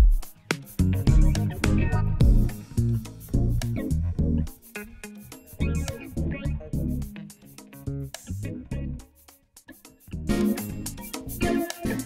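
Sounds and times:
guitar and bass music with beat: 0.0 - 12.0.

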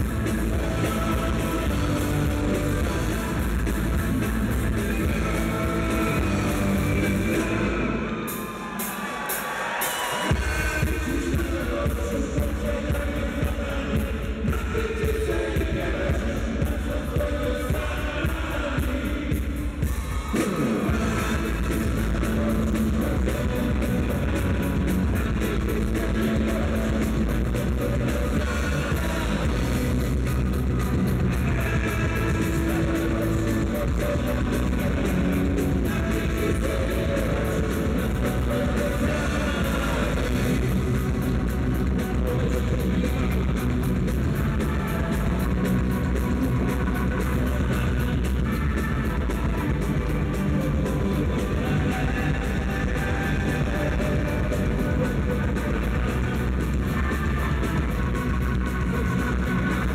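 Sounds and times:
bass guitar: 0.0 - 8.4, 10.3 - 59.9
keyboards: 0.0 - 13.8
electric guitar: 0.0 - 59.9
person singing: 0.0 - 59.9.

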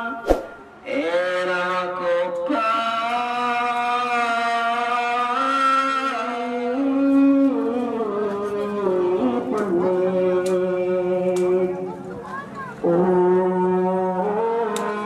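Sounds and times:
slow chant-like singing: 0.8 - 12.0, 12.8 - 15.0.

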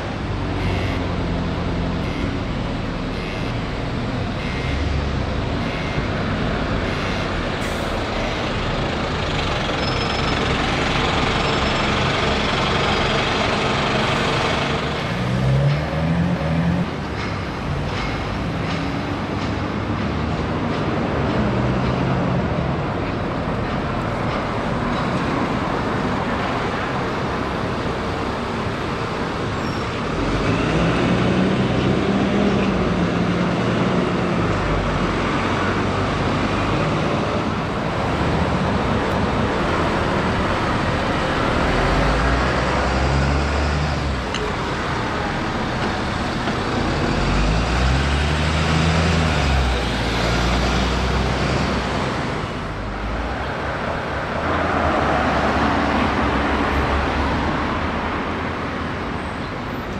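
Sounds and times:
bus engines revving: 0.0 - 59.9
traffic noise: 0.0 - 59.9.

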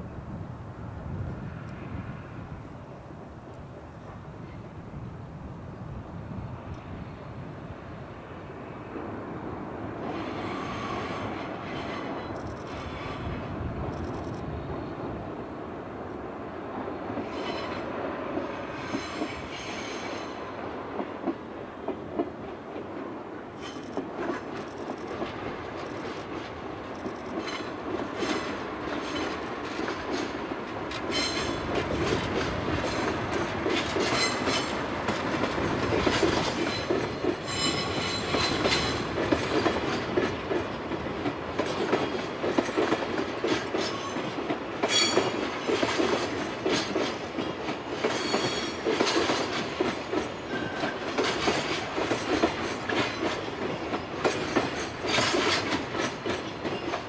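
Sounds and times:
diesel locomotive engine: 0.0 - 57.0
train wheels clacking over rail joints: 10.0 - 14.4, 17.1 - 57.0
wheel squeal: 10.2 - 13.3, 36.6 - 39.0.

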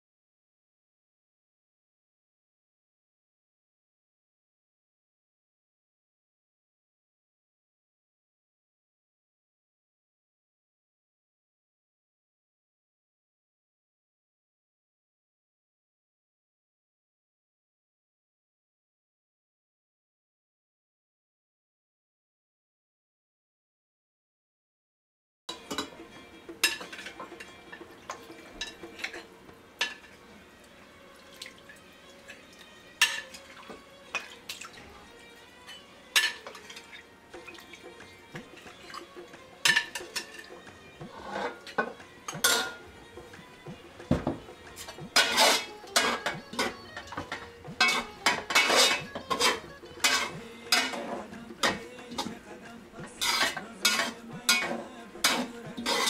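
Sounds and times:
metal utensils clinking on glass: 25.5 - 30.2, 32.2 - 34.7, 35.6 - 37.9, 38.5 - 42.9, 44.8 - 52.4, 53.1 - 56.0
metal skimmer scraping rice: 41.1 - 41.7, 44.9 - 52.2, 53.1 - 56.0.

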